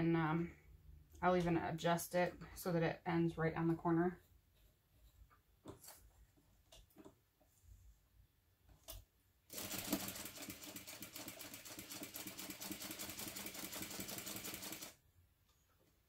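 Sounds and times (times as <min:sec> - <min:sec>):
sewing machine stitching: 0:09.5 - 0:15.0.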